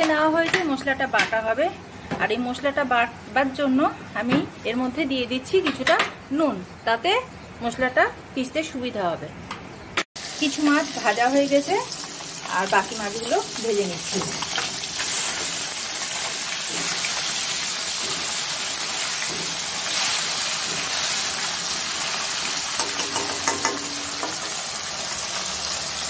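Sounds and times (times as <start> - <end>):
fish sizzling in hot oil: 10.2 - 26.0.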